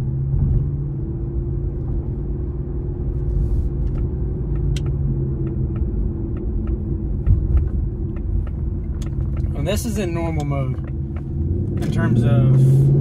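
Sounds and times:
low exhaust rumble: 0:00.0 - 0:13.0
road noise: 0:00.0 - 0:13.0
faint regular ticking: 0:03.8 - 0:12.0.

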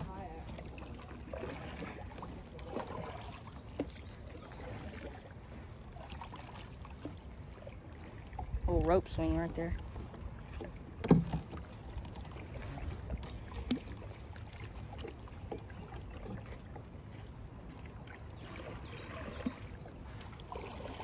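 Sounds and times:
kayak paddle splashing: 0:00.0 - 0:21.0.

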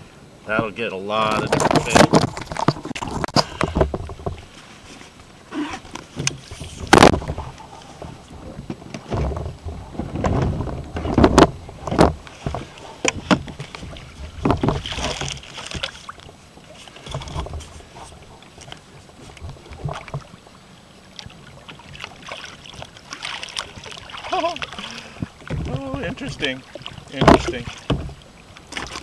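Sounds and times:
handling noise: 0:01.2 - 0:20.3
gear knocking against plastic kayak: 0:25.2 - 0:29.0.

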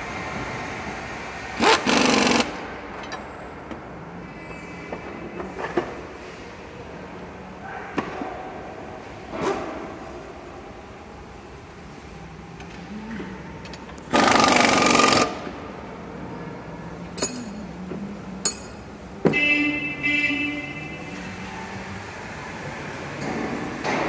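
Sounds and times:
low workshop background: 0:00.0 - 0:24.0
air tool burst: 0:01.6 - 0:02.6.

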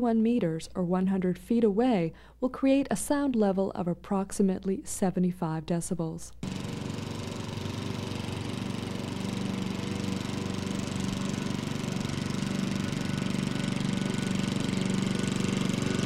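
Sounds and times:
lawnmower engine running: 0:06.4 - 0:16.0.

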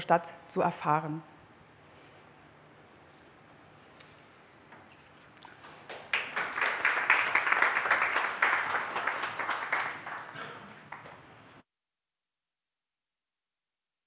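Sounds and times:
audience applauding: 0:05.6 - 0:11.4.

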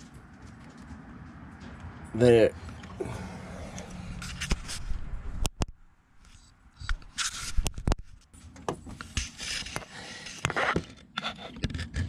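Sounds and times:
camera handling rubbing and scraping: 0:03.7 - 0:12.0.

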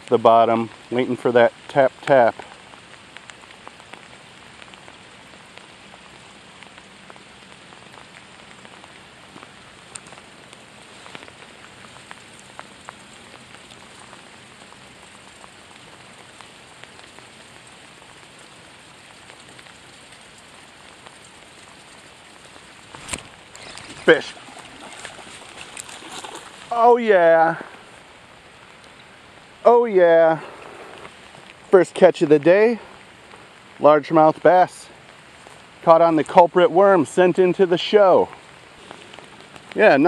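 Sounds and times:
rain falling on lake: 0:00.0 - 0:40.0.

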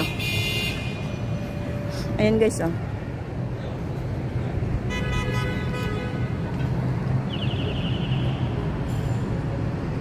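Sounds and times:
city traffic hum: 0:00.0 - 0:10.0
vehicle horn: 0:04.9 - 0:06.4.

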